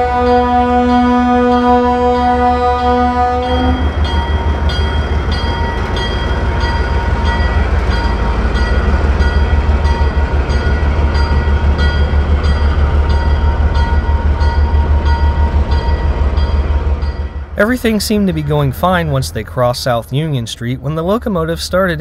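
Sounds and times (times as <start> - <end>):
bell ringing: 3.4 - 19.4
diesel engine working hard: 15.6 - 22.0.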